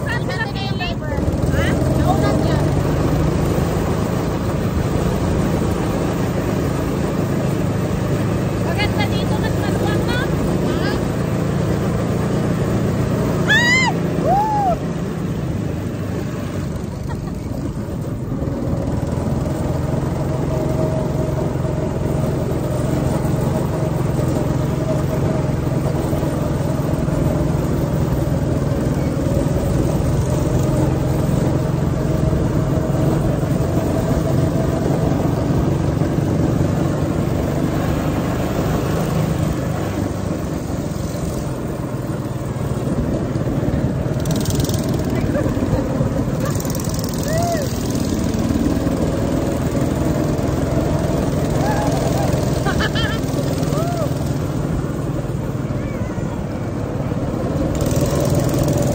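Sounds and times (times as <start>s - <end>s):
go-kart engine drone: 0.0s - 58.9s.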